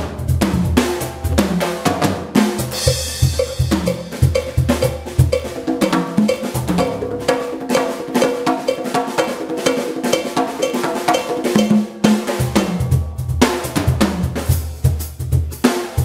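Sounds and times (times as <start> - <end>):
electric bass guitar line: 0.0 - 8.0, 11.0 - 14.9
conga drums: 0.0 - 16.0
drum kit: 0.0 - 16.0.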